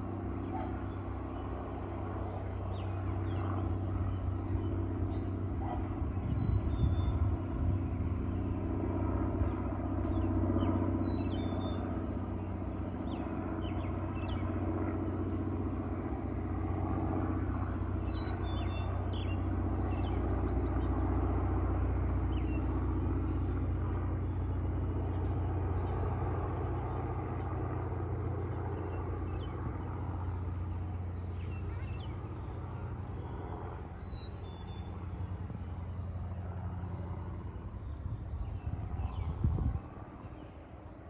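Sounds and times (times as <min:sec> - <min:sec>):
propeller plane droning overhead: 0:00.0 - 0:41.0.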